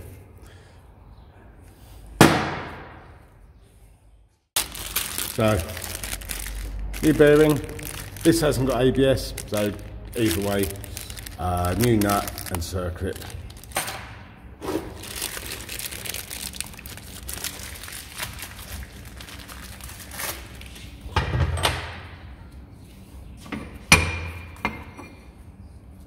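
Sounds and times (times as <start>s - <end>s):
plastic bag crinkling: 4.6s - 13.9s, 14.9s - 20.8s.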